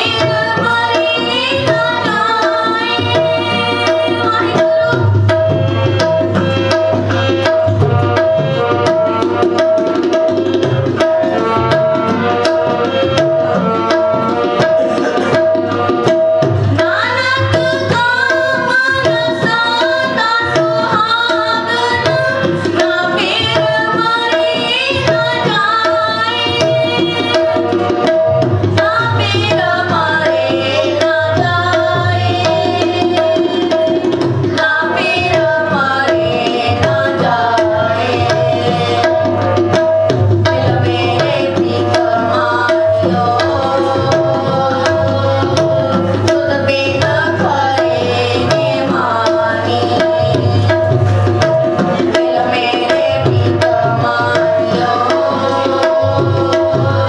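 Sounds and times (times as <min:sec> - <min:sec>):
girl singing: 0:00.0 - 0:05.2
harmonium playing devotional song: 0:00.0 - 0:57.0.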